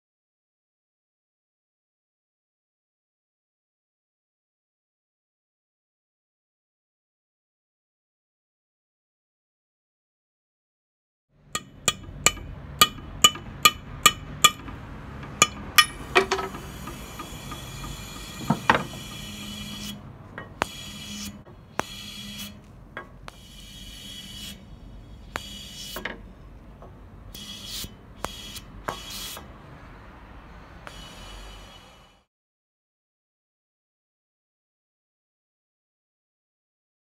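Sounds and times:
hammer tapping metal: 0:11.6 - 0:23.4
air hissing into glass tube: 0:15.8 - 0:20.0, 0:20.6 - 0:22.6, 0:23.3 - 0:26.1, 0:27.3 - 0:29.5, 0:30.6 - 0:32.3.

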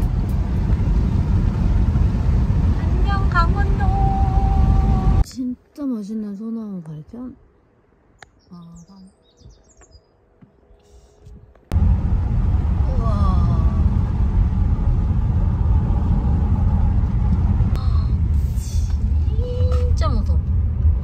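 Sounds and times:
car road and engine rumble: 0:00.0 - 0:05.7, 0:10.3 - 0:21.0.

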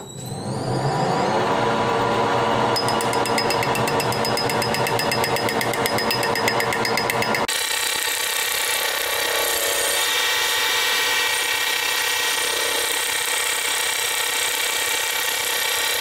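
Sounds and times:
metal lathe whining: 0:00.0 - 0:16.0
fast even ticking: 0:02.8 - 0:07.5.

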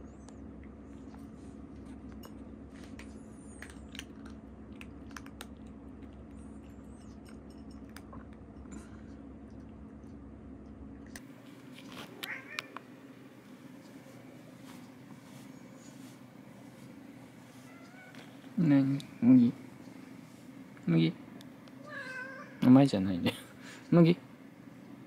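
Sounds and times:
steady low hum: 0:00.0 - 0:25.0
cats chewing: 0:00.2 - 0:20.6
food clicking against bowl: 0:03.6 - 0:08.4.

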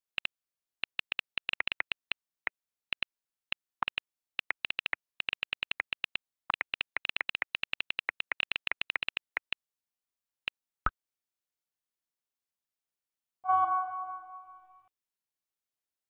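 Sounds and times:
phone keyboard clicks: 0:00.0 - 0:02.2, 0:03.8 - 0:09.6.

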